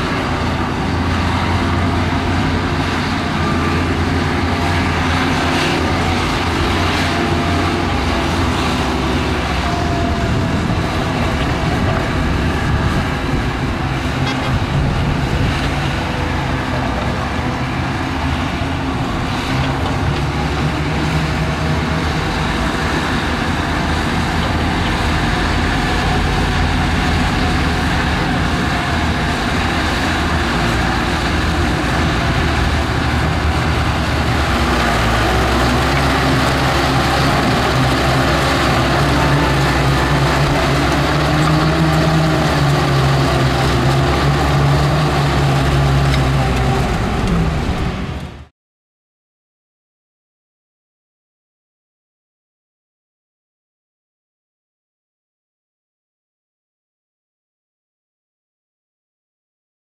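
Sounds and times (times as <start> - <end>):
heavy machinery diesel engine: 0.0 - 48.5.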